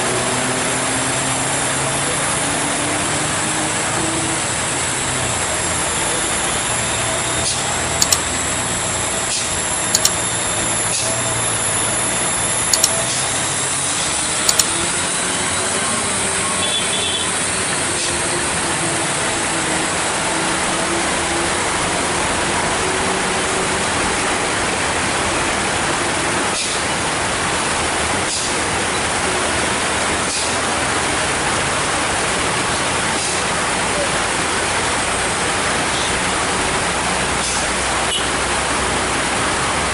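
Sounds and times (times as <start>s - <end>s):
truck diesel engine at low revs: 0.0s - 39.9s
short sharp clicks: 8.0s - 8.3s, 10.0s - 10.2s, 12.7s - 13.1s, 14.4s - 14.8s
heavy rain hiss: 17.1s - 39.9s.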